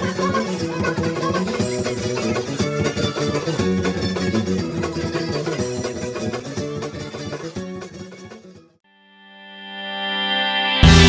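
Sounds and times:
drums: 0.0 - 8.6
bass guitar: 0.0 - 8.7, 10.8 - 11.0
electric guitar: 0.0 - 8.7, 9.4 - 11.0.

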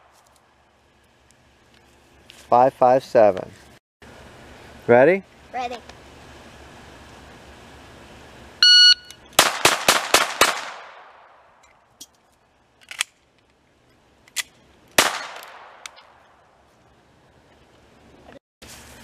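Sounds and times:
shot timer beep: 8.6 - 9.2
pistol shots: 9.4 - 11.4, 15.0 - 16.1
magazine change clicks: 12.8 - 13.6.

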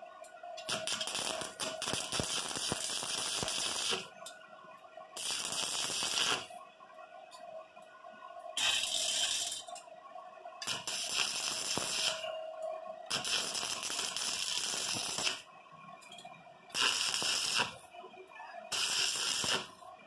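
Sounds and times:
welding arc crackling: 0.7 - 4.1, 5.2 - 6.5, 10.6 - 12.2, 13.1 - 15.4, 16.7 - 17.8, 18.7 - 19.8.

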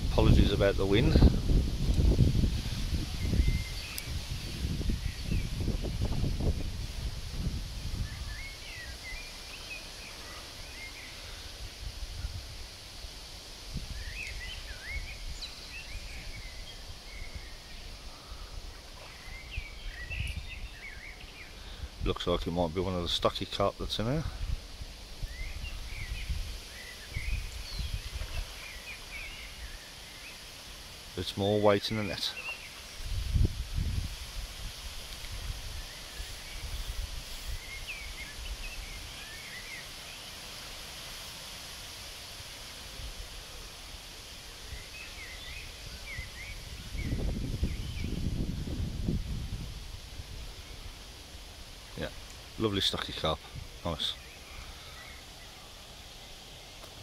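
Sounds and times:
wind buffeting microphone: 0.0 - 8.5, 33.0 - 39.0, 45.6 - 50.6
birds chirping: 14.0 - 24.4, 25.2 - 30.5, 31.2 - 33.0, 51.8 - 57.0.

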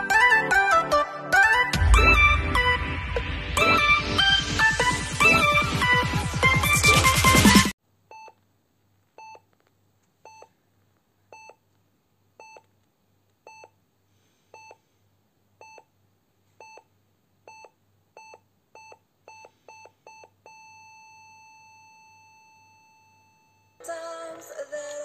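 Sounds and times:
electronic intro music: 0.2 - 7.8.

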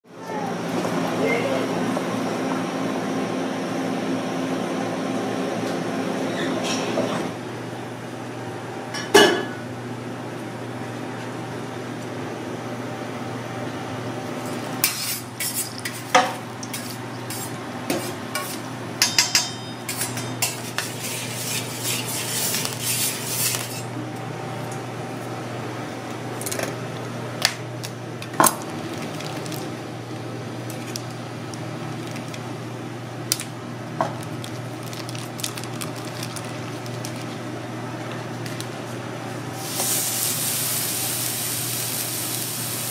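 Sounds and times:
utensils and dishes clinking: 14.8 - 23.9
plastic packaging crinkling: 28.5 - 29.8, 30.6 - 32.5, 34.0 - 37.5.

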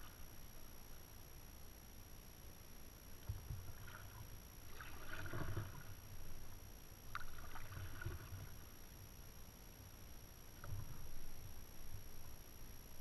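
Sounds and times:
paddle blades splashing: 3.3 - 6.0, 7.1 - 8.7.

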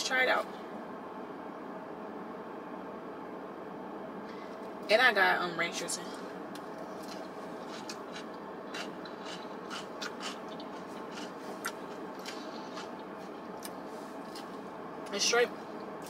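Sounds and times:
steady background hum: 0.0 - 16.0
chewing crunches: 6.8 - 14.6
fork scraping in bowl: 7.0 - 12.9.

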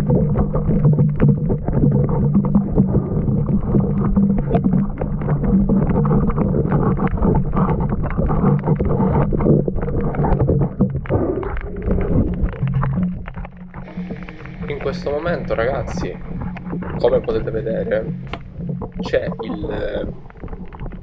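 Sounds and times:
underwater churning water and bubbles: 0.0 - 21.0
steady low hum: 12.6 - 20.4.

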